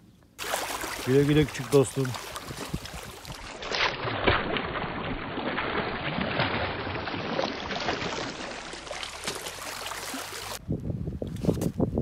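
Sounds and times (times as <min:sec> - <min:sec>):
waves lapping on rocks: 0:00.4 - 0:03.8.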